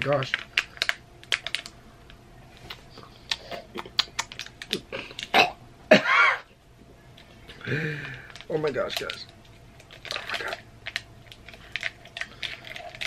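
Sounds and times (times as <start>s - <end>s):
plastic packet crinkling: 0.0s - 3.4s, 4.0s - 5.3s, 7.9s - 13.0s.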